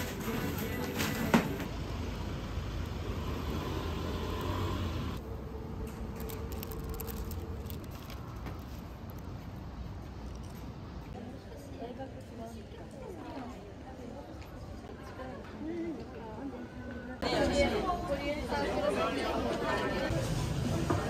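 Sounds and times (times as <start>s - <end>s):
low traffic rumble: 1.5s - 14.9s.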